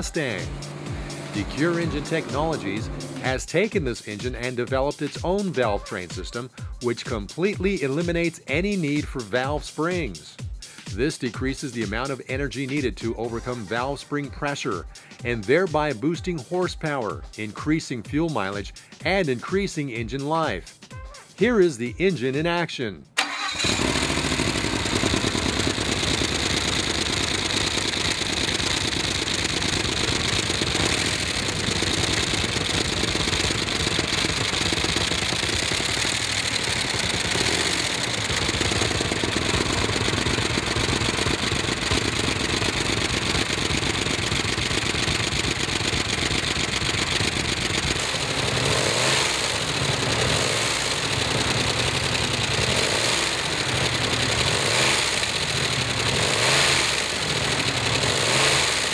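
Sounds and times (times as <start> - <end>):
engine running steadily: 0.0 - 4.5, 23.2 - 58.9.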